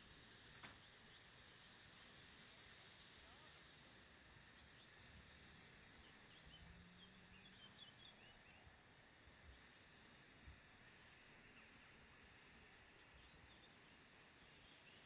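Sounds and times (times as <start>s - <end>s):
faint outdoor air hiss: 0.0s - 15.0s
faint bird chirps: 6.0s - 8.8s.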